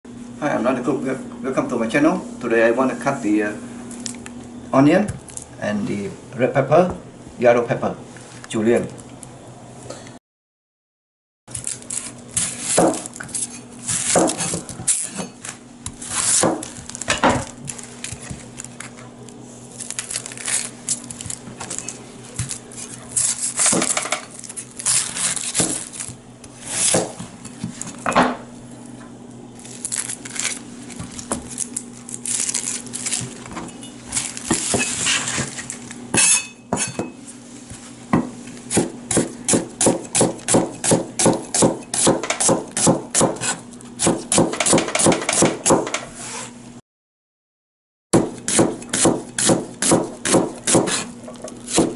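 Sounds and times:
cleaver chopping on plastic board: 0:12.7 - 0:13.1, 0:26.9 - 0:27.3, 0:38.2 - 0:46.0, 0:48.2 - 0:51.1.

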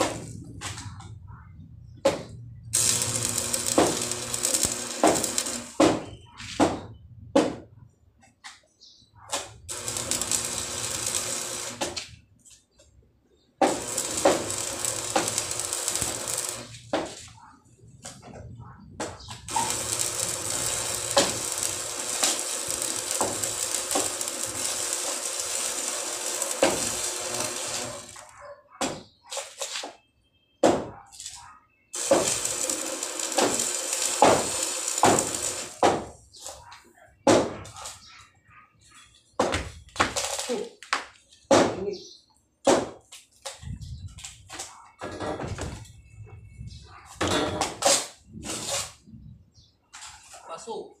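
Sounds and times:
welding arc crackling: 0:00.0 - 0:01.1, 0:02.6 - 0:05.8, 0:09.3 - 0:12.2, 0:13.6 - 0:16.9, 0:19.4 - 0:28.3, 0:31.9 - 0:36.0, 0:40.0 - 0:40.7
welding arc spits: 0:00.0 - 0:01.1, 0:01.9 - 0:06.0, 0:09.3 - 0:12.2, 0:13.6 - 0:16.9, 0:19.3 - 0:28.3, 0:31.9 - 0:36.6, 0:40.0 - 0:40.7.

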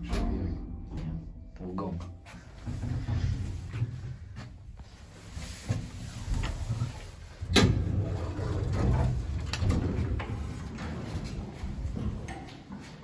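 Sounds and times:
door rumbling open: 0:07.4 - 0:12.4.

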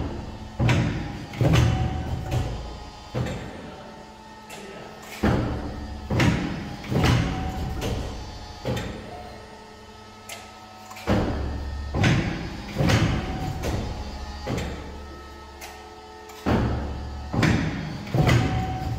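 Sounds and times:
cutting machine clunks: 0:00.0 - 0:03.7, 0:04.4 - 0:09.3, 0:10.2 - 0:18.9.

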